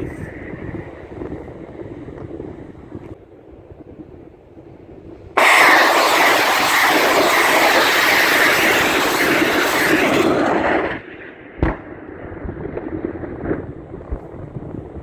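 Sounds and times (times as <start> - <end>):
rockets launching rushing noise: 5.4 - 14.3
boom of warhead detonating: 5.4 - 14.6.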